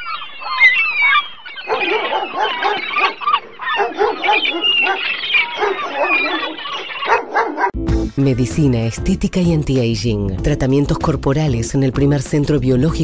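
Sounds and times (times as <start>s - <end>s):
dense low animal calls: 0.0s - 7.7s
high chirping animal calls: 0.0s - 7.7s.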